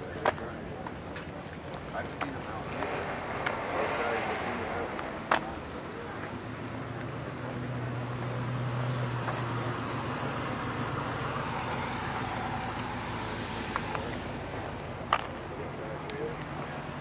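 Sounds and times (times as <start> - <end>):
engine humming: 0.0 - 17.0
outdoor car lot noise: 0.0 - 17.0.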